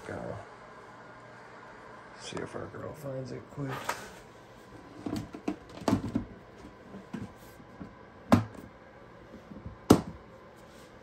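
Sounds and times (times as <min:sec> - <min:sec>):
plastic drawers knocking and clicking: 0:05.0 - 0:06.4, 0:09.5 - 0:10.2.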